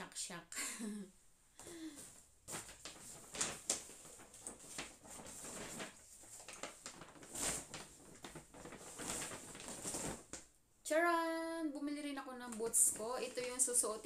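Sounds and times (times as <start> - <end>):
paper bag rustling and crinkling: 1.8 - 10.5, 12.4 - 14.0.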